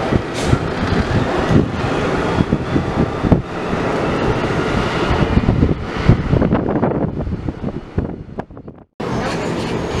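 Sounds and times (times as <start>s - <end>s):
train clatter: 0.0s - 6.6s
train wheels rumbling on rails: 0.0s - 10.0s.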